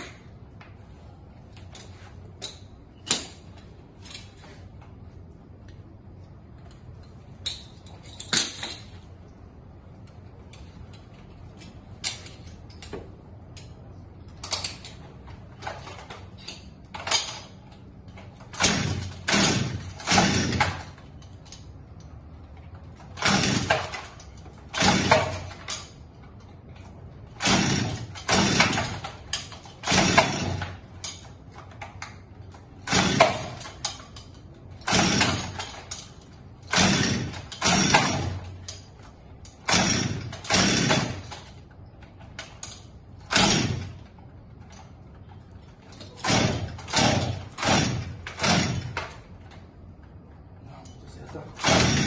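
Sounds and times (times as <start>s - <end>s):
chainsaw starter cord rasps: 18.6s - 21.0s, 23.2s - 25.9s, 27.4s - 31.3s, 32.8s - 34.0s, 34.8s - 38.8s, 39.5s - 41.6s, 43.3s - 44.0s, 46.1s - 49.3s, 51.5s - 52.0s.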